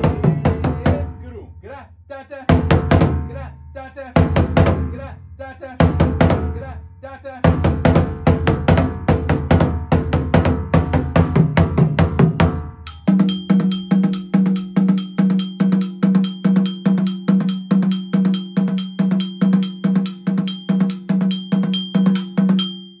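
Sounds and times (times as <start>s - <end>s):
lower faster drumming: 0.0s - 1.4s, 2.5s - 3.4s, 4.2s - 5.2s, 5.8s - 6.8s, 7.4s - 22.7s
iron bell ringing: 12.8s - 23.0s.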